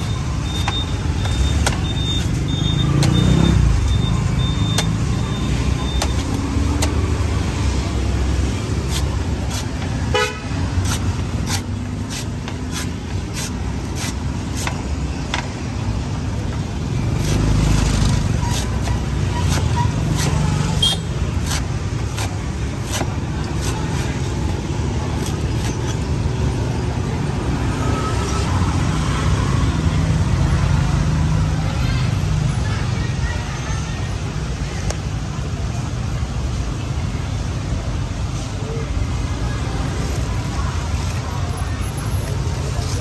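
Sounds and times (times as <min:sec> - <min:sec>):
street traffic: 0:00.0 - 0:43.0
knife chopping coconut husks: 0:00.6 - 0:03.3, 0:05.7 - 0:07.4, 0:08.0 - 0:15.6, 0:17.0 - 0:26.2
car horn: 0:10.1 - 0:10.6.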